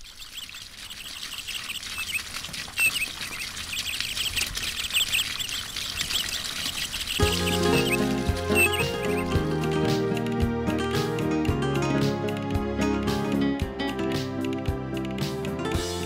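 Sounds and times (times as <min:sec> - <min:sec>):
small birds chirping: 0:00.0 - 0:10.0
guitar music: 0:07.2 - 0:16.0.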